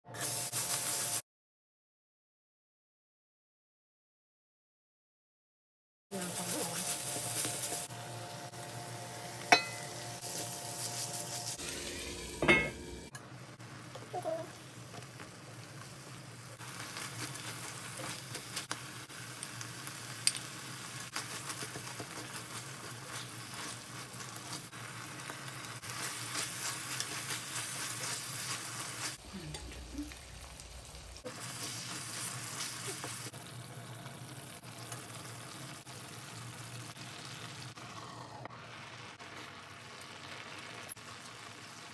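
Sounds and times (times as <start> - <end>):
meat and onions sizzling in a pan: 0.1 - 1.2, 6.1 - 41.9
spatula stirring: 21.1 - 24.8, 25.4 - 29.7.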